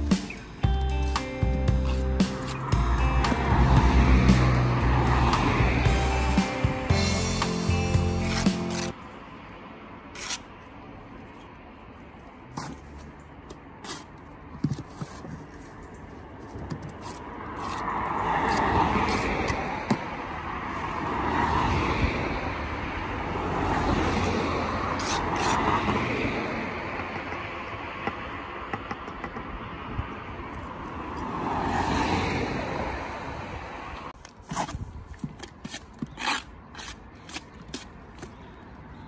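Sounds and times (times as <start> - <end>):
cars passing: 0.0 - 34.2
trowel chipping mortar off brick: 1.8 - 2.7, 8.2 - 9.0, 10.1 - 10.5, 13.8 - 15.6, 16.6 - 19.6, 25.0 - 25.7, 34.4 - 38.4.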